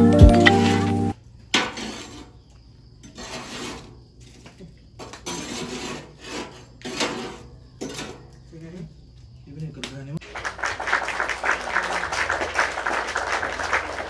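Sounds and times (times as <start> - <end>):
background music: 0.0 - 1.2.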